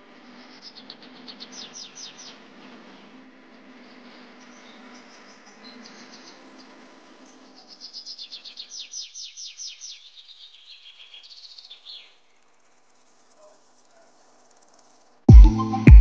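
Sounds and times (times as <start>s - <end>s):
bird chirping: 0.6s - 2.4s, 4.0s - 12.4s.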